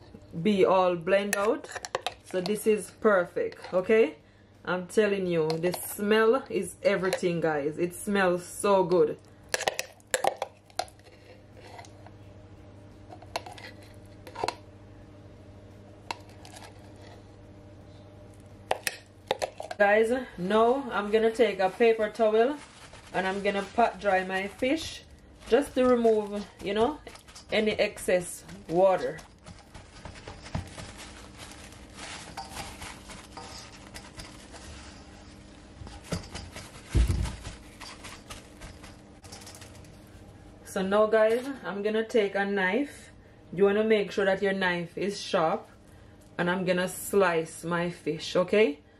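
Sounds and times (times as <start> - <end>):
paper towel rustling and dabbing: 20.5 - 39.2.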